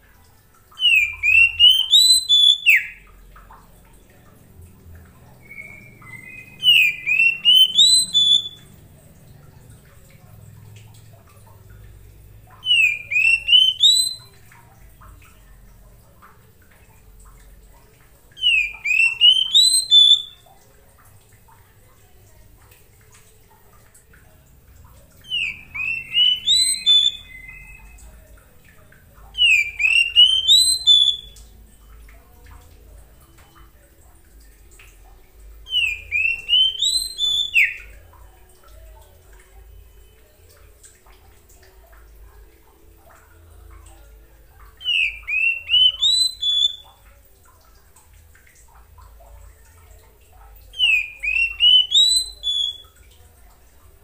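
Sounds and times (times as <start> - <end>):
bird singing whistled notes: 0.8 - 3.0, 5.4 - 8.7, 12.6 - 14.4, 18.4 - 20.4, 25.2 - 28.0, 29.4 - 31.4, 35.7 - 37.9, 44.8 - 47.0, 50.8 - 53.0.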